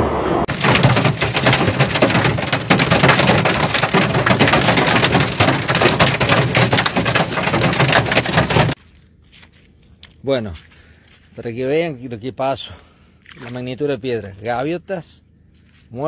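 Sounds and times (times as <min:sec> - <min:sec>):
hail clattering: 0:00.5 - 0:08.8.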